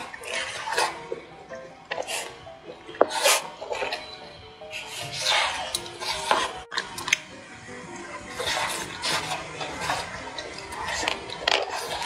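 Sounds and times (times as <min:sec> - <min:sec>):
wet chewing and smacking: 0:00.0 - 0:07.3
soft background music: 0:00.0 - 0:12.0.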